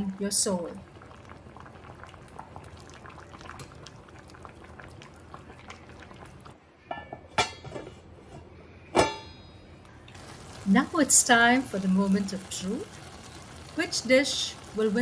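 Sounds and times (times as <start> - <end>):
rice and broth boiling in a pot: 0.0 - 6.6, 10.1 - 15.0
metal lid clanking on pot: 6.9 - 7.9.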